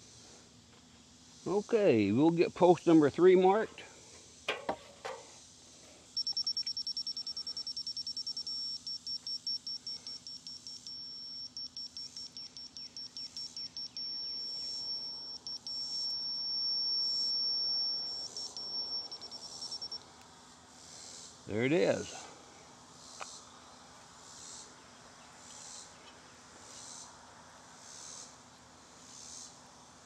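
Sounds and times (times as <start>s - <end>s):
rapid high beeps: 6.1s - 20.0s
steady electronic tone: 6.2s - 20.0s.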